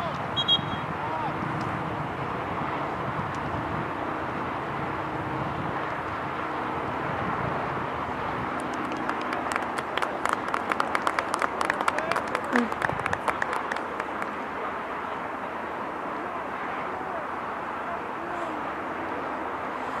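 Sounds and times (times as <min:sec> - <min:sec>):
outdoor background noise: 0:00.0 - 0:20.0
spectators clapping: 0:08.6 - 0:14.4.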